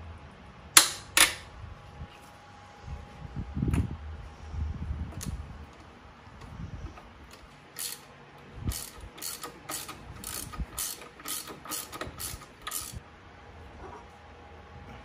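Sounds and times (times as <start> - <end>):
ratchet wrench clicking: 7.3 - 8.1, 8.7 - 13.0.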